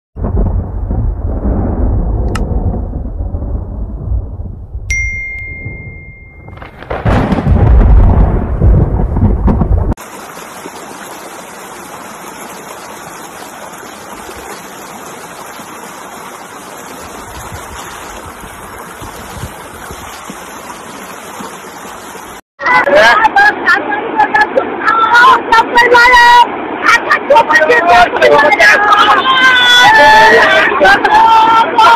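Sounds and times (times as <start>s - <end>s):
loud thunderclap: 0.2s - 4.9s, 6.5s - 10.0s
thunder rumbling: 0.2s - 4.9s, 6.4s - 10.0s
bell-like chime: 4.9s - 6.6s
river rushing: 10.0s - 31.9s.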